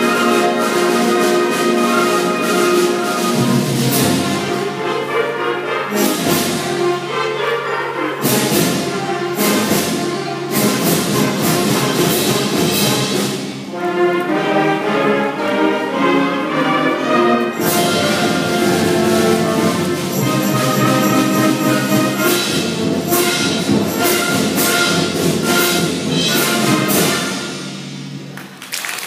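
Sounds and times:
drums: 0.0s - 15.8s, 17.3s - 29.0s
sharp percussion strikes: 17.6s - 28.6s.

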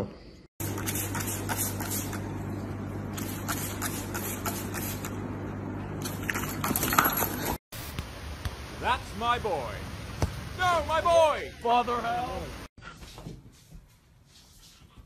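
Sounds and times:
spray bottle squirting water: 0.6s - 2.3s, 3.1s - 5.2s.

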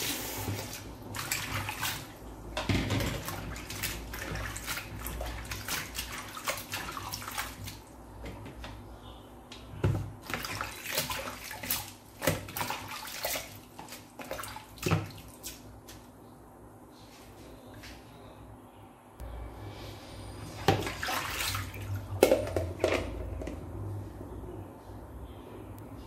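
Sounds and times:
water splashing in a sink: 0.0s - 8.6s, 9.8s - 15.8s, 20.6s - 23.7s.

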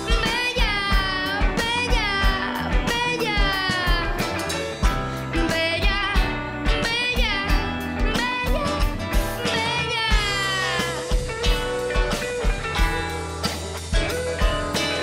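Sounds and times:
woman singing: 0.0s - 4.6s, 5.3s - 12.2s
live band playing: 0.0s - 15.0s.

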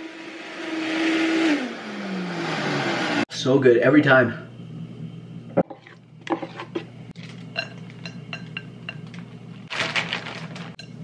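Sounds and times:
steady low hum: 3.3s - 9.7s
spoon clinking on ceramic bowl: 7.5s - 9.2s.

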